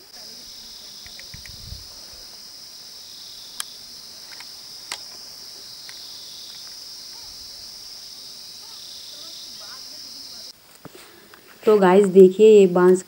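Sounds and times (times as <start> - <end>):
insects droning: 0.0 - 13.0
sharp clicks: 1.0 - 1.6, 3.5 - 5.2.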